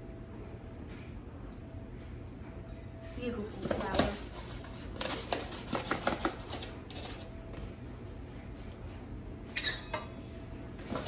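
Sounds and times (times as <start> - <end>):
kitchen taps scrapes and rustles: 3.5 - 7.2.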